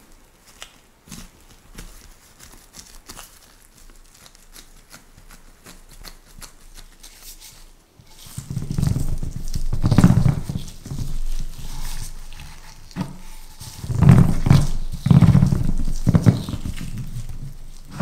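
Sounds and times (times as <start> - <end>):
rolling pin rumbling on pan rim: 8.1 - 18.0.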